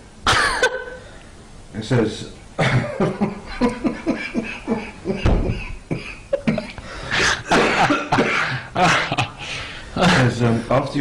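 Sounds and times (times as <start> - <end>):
man laughing hard: 2.6 - 9.5.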